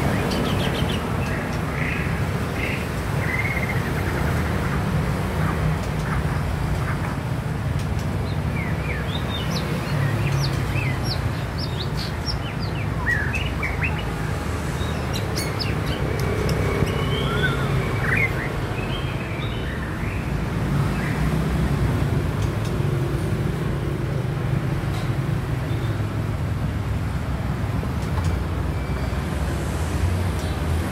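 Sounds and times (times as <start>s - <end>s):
bird singing whistled notes: 16.8s - 19.9s.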